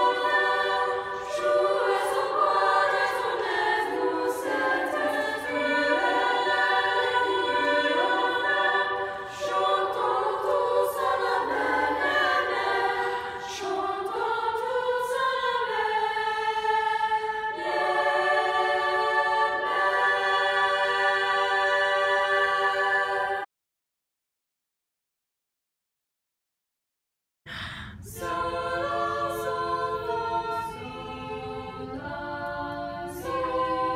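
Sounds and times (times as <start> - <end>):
youth choir singing a cappella: 0.0 - 23.5, 28.0 - 33.9.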